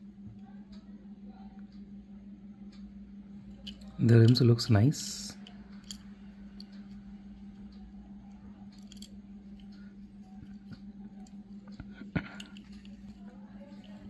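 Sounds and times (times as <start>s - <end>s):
steady low hum: 0.0s - 14.0s
toy car handling clicks: 8.7s - 9.8s.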